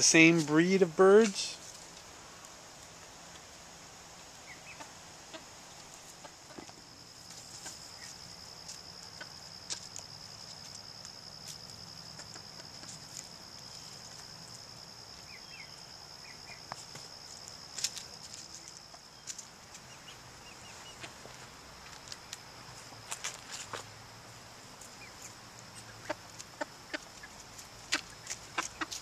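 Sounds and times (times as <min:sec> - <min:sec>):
chickens clucking: 0:04.4 - 0:09.9, 0:12.0 - 0:14.3, 0:19.7 - 0:21.4, 0:24.7 - 0:29.0
chickens foraging clicks: 0:04.7 - 0:14.6, 0:16.4 - 0:20.2, 0:24.7 - 0:29.0.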